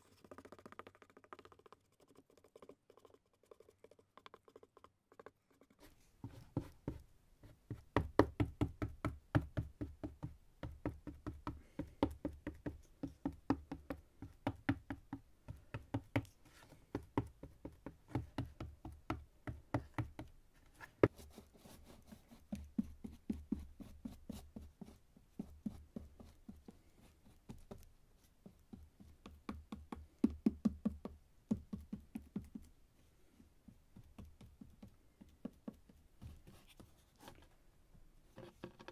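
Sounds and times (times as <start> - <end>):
rapid tapping on cardboard: 5.8 - 32.8, 33.6 - 37.0.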